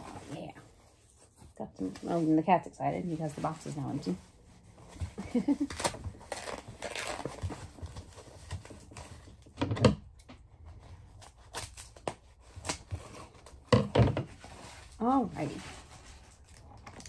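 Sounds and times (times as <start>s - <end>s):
packaging rustling: 3.4s - 9.5s.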